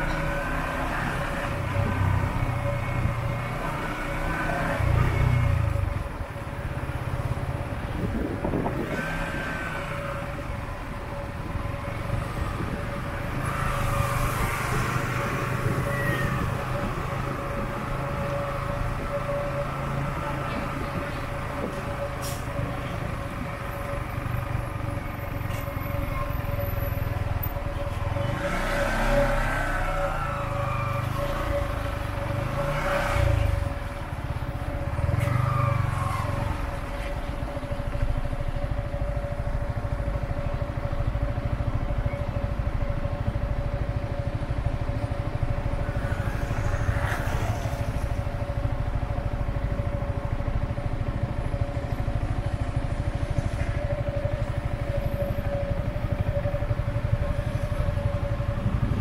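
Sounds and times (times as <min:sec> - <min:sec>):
low engine noise of traffic: 0:00.0 - 0:59.0
engines revving and passing: 0:08.0 - 0:10.6, 0:28.1 - 0:34.1, 0:45.4 - 0:48.7.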